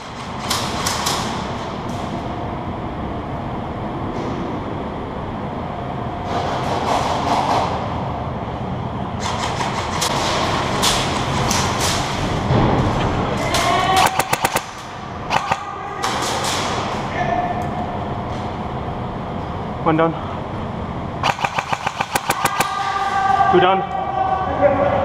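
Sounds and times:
airsoft guns firing: 9.2 - 12.2, 13.5 - 17.0, 21.2 - 23.0.

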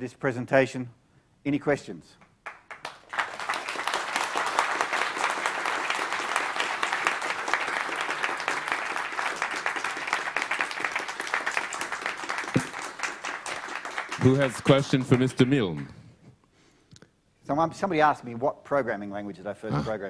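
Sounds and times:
audience applauding: 2.4 - 15.9.

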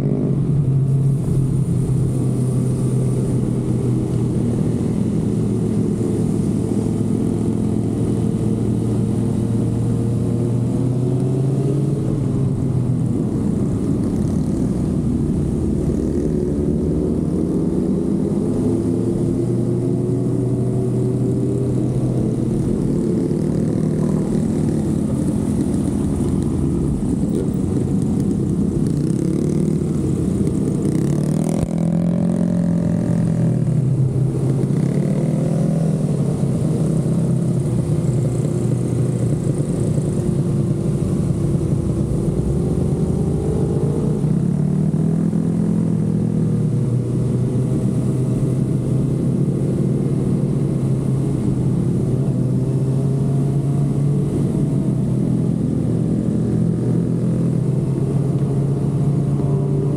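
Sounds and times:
motorcycle engine revving: 2.6 - 59.9.

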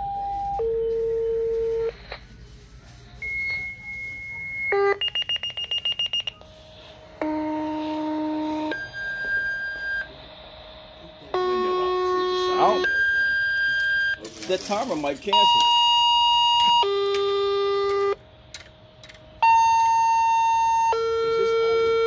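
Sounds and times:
electronic alert tones: 3.2 - 6.4
rapid pulsing beep: 3.2 - 6.4, 7.2 - 10.1, 11.4 - 14.2.

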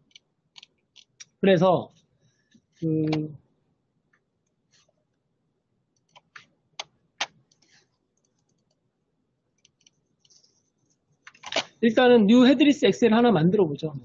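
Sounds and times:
computer mouse clicks: 0.0 - 1.4, 6.0 - 8.8, 9.6 - 10.5.

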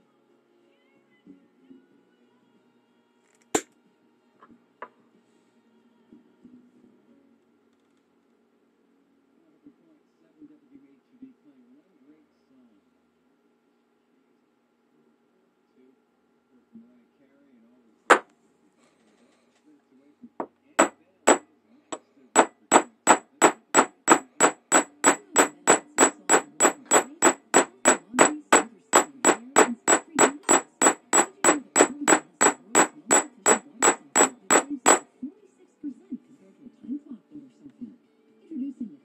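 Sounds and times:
hammer striking metal: 20.8 - 21.4, 22.4 - 35.0.

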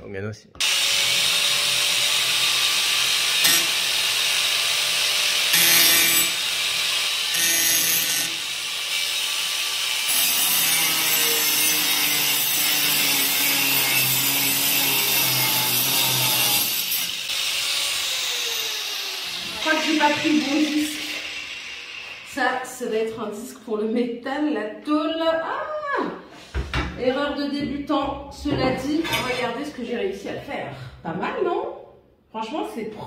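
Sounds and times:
angle grinder cutting tile: 0.6 - 22.7.

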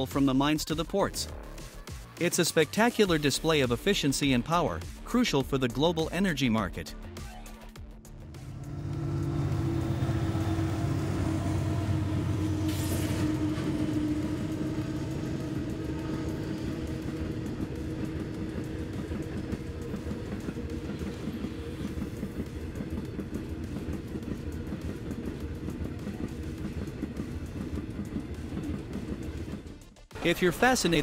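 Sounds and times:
diesel locomotive engines running: 7.9 - 31.0
train wheels clacking on rails: 8.3 - 29.8.

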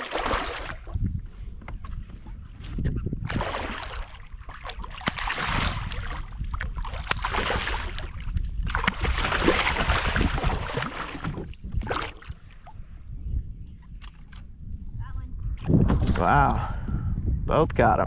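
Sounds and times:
fish thrashing and splashing: 0.0 - 1.0, 3.2 - 12.6.

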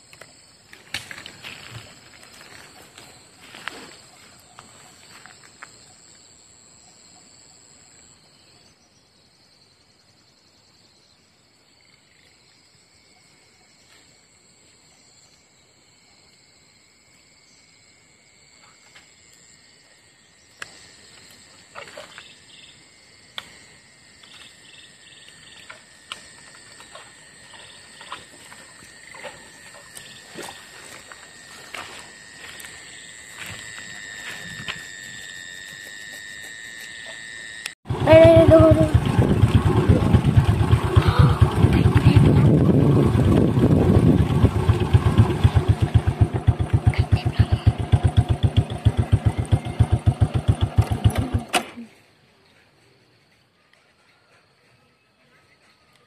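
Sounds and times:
insects shrilling: 20.4 - 37.8.

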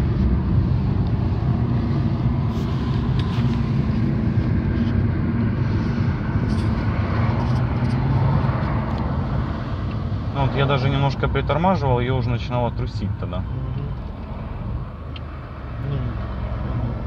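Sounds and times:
car engine drone: 0.0 - 17.0
tyre and road noise: 0.0 - 17.0.

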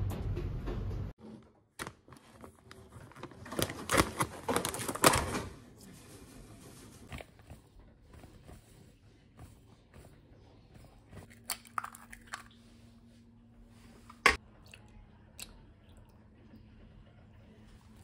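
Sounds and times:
pouch crinkling and tearing: 1.8 - 5.4.

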